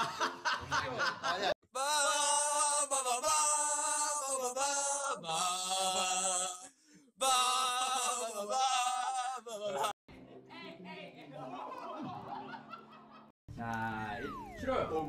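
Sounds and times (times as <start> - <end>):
men singing long held notes: 1.7 - 9.9.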